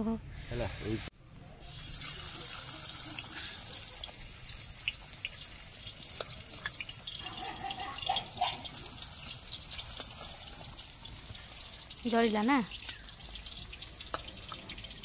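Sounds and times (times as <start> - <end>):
fish sizzling in hot oil: 1.6 - 15.0.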